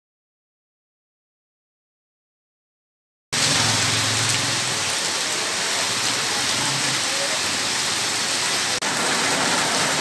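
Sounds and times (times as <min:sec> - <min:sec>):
heavy rain falling: 0:03.4 - 0:10.0.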